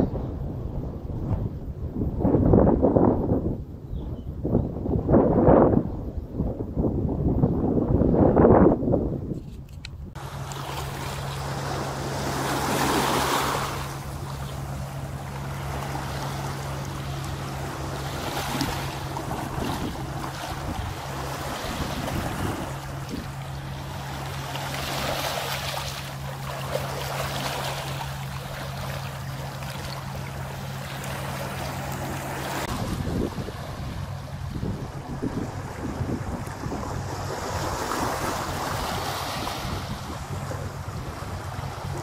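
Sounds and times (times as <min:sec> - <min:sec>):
steady low hum: 0:00.0 - 0:42.0
waves washing over pebbles: 0:10.2 - 0:42.0.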